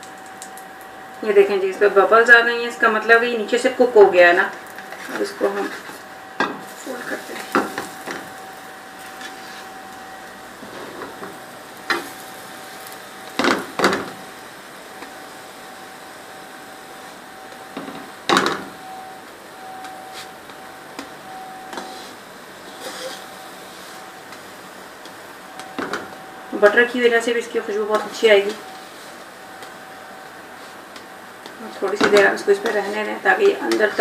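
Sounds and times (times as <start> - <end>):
steady background hum: 0.0 - 34.0
spatula scraping frying pan: 4.7 - 8.4, 9.0 - 9.8, 10.6 - 12.3, 21.8 - 24.0.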